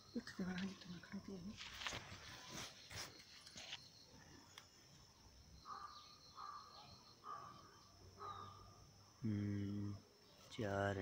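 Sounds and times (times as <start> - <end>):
crow cawing: 5.7 - 8.6.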